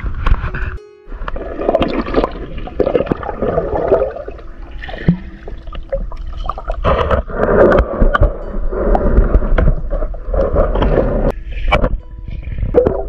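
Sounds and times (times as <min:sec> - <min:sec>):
muffled water churning underwater: 0:00.0 - 0:13.0.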